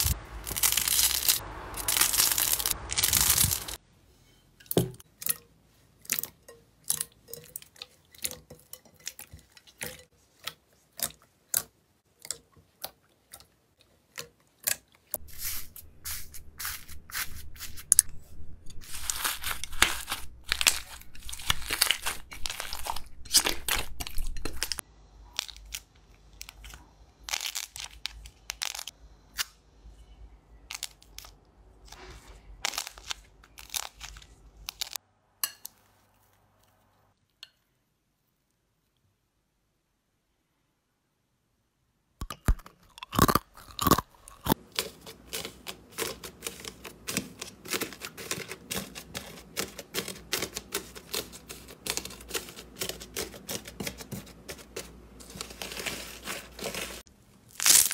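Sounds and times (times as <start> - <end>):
slime popping and crackling: 0.0 - 3.8, 18.8 - 24.8, 32.7 - 35.0, 56.7 - 57.9.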